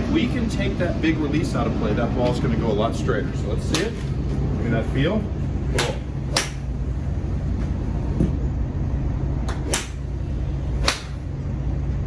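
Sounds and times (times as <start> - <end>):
low rumble: 0.0 - 12.0
golf club striking ball: 5.7 - 6.8, 9.5 - 10.2, 10.8 - 11.3.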